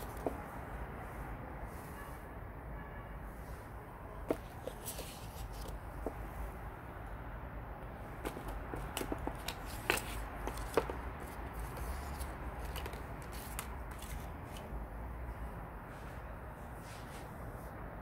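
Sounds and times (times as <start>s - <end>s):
paper and cardboard rustling: 0.0s - 0.4s, 4.2s - 6.2s, 8.1s - 14.7s.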